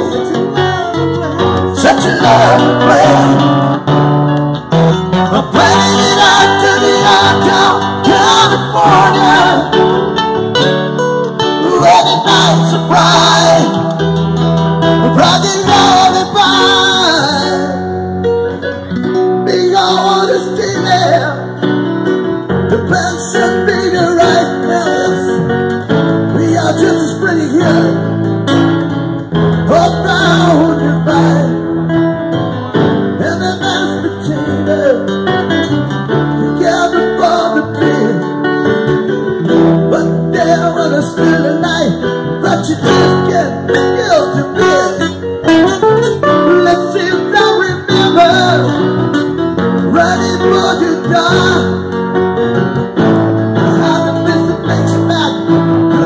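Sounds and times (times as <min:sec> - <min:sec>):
man singing into microphone: 0:00.0 - 0:03.9, 0:05.2 - 0:10.0, 0:11.5 - 0:14.1, 0:15.0 - 0:18.0, 0:19.4 - 0:21.7, 0:22.7 - 0:28.1, 0:29.6 - 0:31.8, 0:33.2 - 0:35.2, 0:36.3 - 0:38.4, 0:39.5 - 0:48.9, 0:49.8 - 0:51.9, 0:53.5 - 0:56.0
acoustic guitar strumming: 0:00.0 - 0:56.0.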